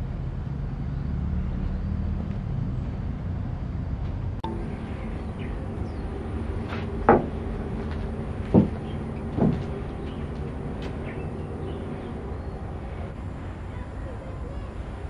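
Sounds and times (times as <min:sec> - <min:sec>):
low background hum: 0:02.3 - 0:15.0
short knocks: 0:06.7 - 0:11.1.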